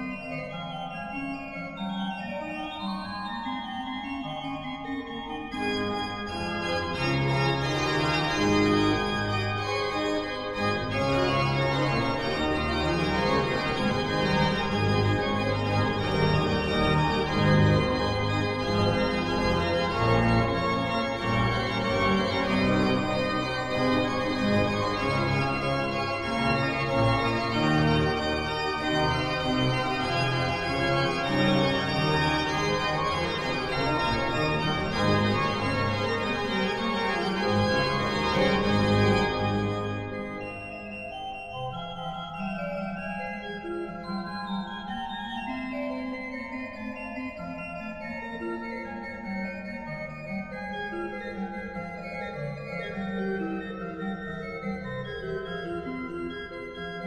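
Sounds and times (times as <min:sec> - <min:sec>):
organ music: 0:00.0 - 0:57.0.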